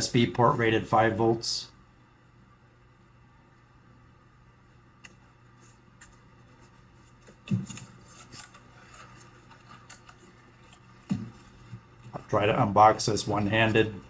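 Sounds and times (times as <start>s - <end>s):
cardboard crackling and scraping: 6.5s - 12.6s.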